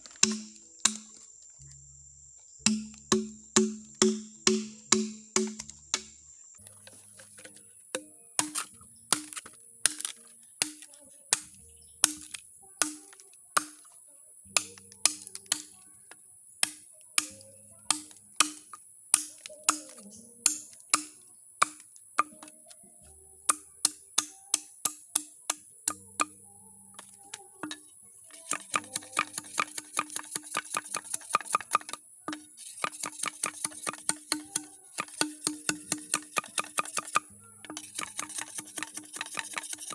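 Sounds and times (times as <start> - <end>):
knife striking bamboo: 0.0 - 1.3, 2.6 - 6.1, 6.8 - 13.9, 14.6 - 15.8, 16.6 - 22.6, 23.5 - 26.4, 27.0 - 39.9.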